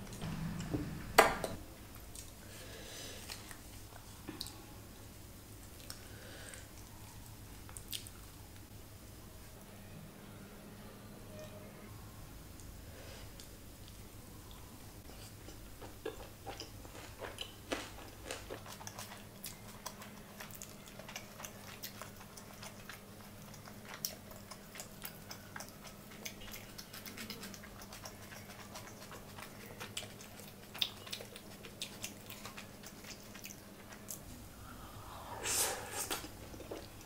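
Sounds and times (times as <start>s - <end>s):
faint low hum: 0.0s - 37.0s
person chewing with wet smacks: 1.9s - 2.4s, 5.6s - 6.0s, 6.6s - 8.7s, 13.4s - 34.4s, 35.8s - 37.0s.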